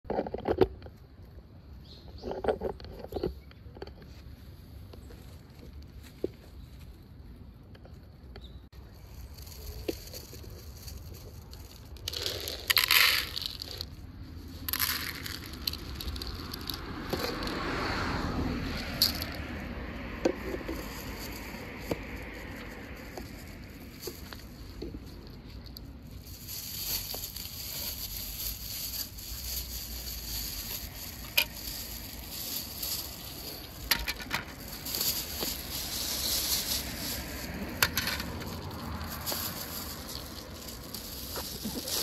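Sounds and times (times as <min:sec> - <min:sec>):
cats crunching dry kibble: 0:08.8 - 0:42.0.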